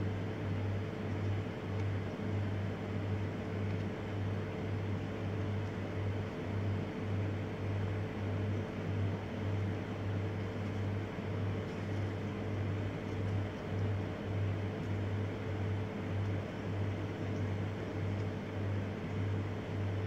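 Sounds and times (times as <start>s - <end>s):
low machine hum: 0.0s - 20.0s.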